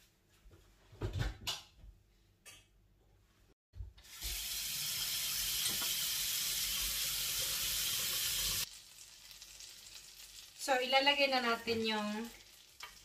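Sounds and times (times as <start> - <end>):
tap water running into sink: 4.0 - 8.6.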